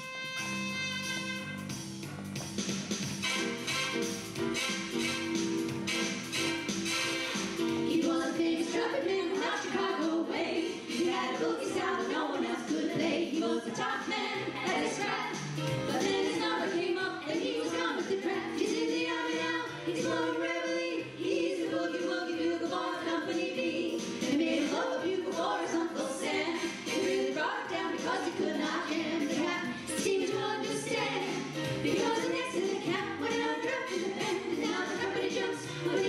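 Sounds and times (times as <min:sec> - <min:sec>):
women singing in harmony: 0:07.7 - 0:36.0.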